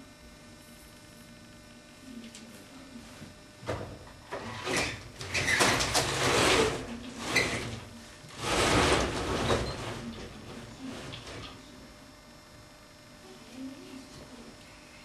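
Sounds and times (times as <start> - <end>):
roller shutter slats rattling: 4.3 - 11.6.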